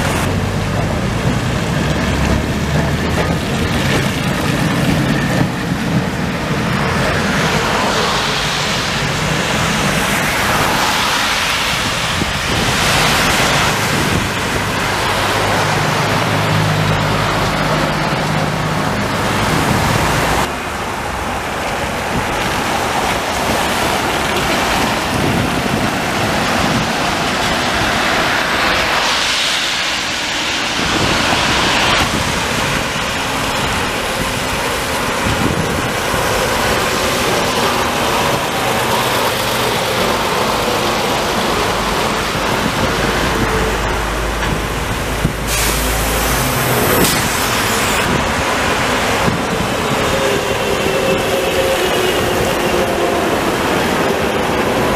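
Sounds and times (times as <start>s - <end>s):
tyres hissing on wet road: 0.0s - 54.9s
wind on microphone: 0.0s - 54.9s.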